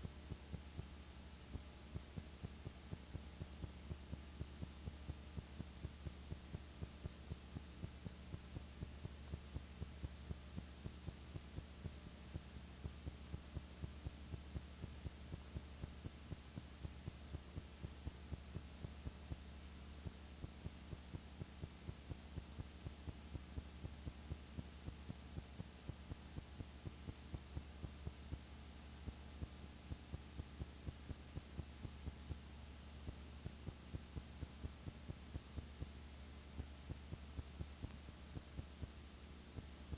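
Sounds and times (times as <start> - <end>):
low electrical hum: 0.0 - 39.9.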